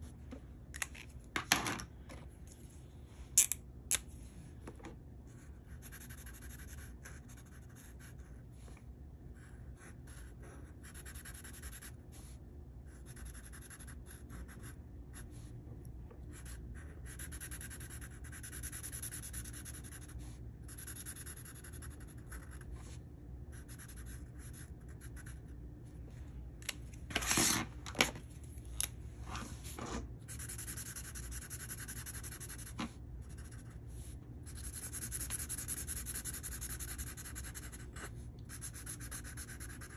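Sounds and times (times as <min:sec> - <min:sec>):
marker rubbing on paper: 0:29.4 - 0:39.9.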